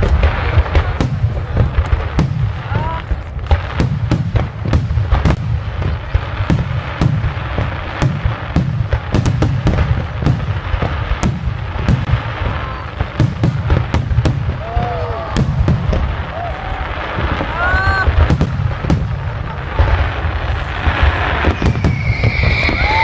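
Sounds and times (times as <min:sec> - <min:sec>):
firework shells bursting: 0:17.5 - 0:23.0.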